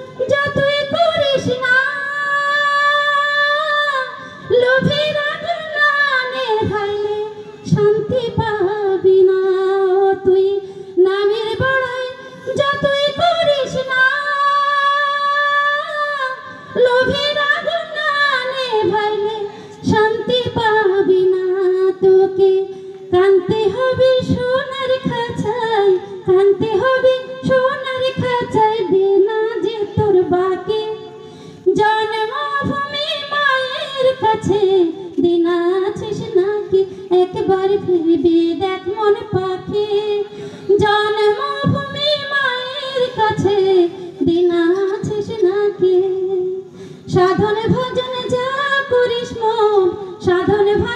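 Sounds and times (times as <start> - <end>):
woman singing unaccompanied: 0.0 - 50.9
singer breathing: 4.2 - 4.5, 10.6 - 11.0, 19.5 - 19.8, 31.1 - 31.7, 40.2 - 40.7, 46.7 - 47.1.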